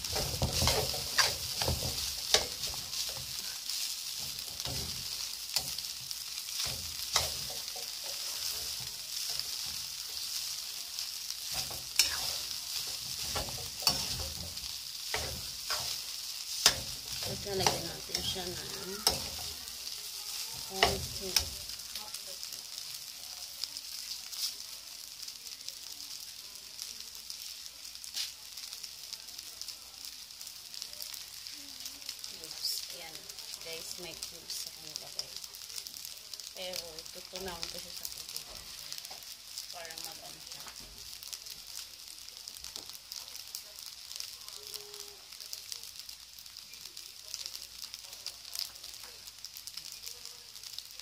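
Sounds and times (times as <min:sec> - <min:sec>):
food sizzling in a wok: 0:00.0 - 0:51.0.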